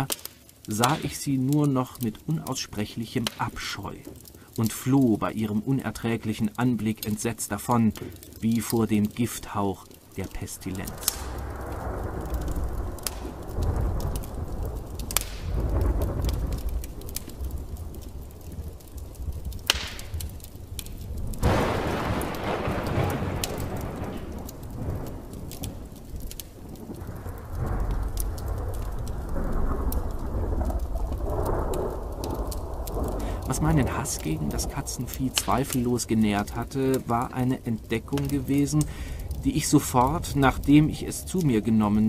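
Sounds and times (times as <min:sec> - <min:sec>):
steady rain: 0:00.0 - 0:42.0
thunder rumbling: 0:00.8 - 0:42.0
sharp thunder crack: 0:10.2 - 0:41.6.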